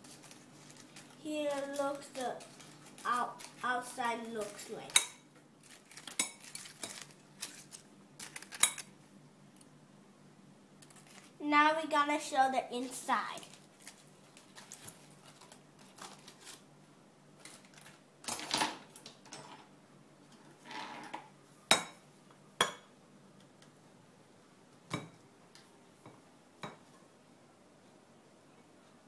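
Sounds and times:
aluminium foil rustling: 0:00.0 - 0:05.0, 0:05.6 - 0:08.9, 0:10.8 - 0:11.4, 0:12.2 - 0:16.7, 0:17.4 - 0:18.4.

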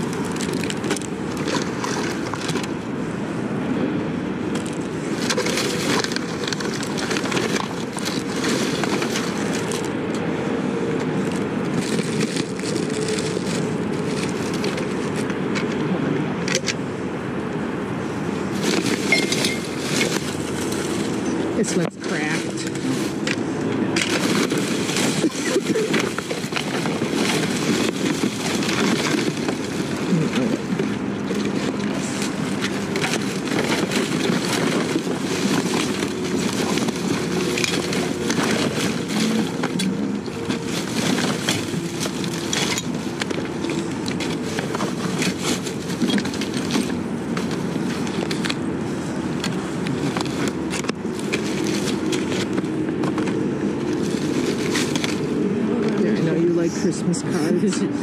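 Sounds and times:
goods rustling and clattering: 0:00.0 - 0:02.9, 0:04.5 - 0:10.2, 0:10.9 - 0:15.9, 0:18.3 - 0:57.9.

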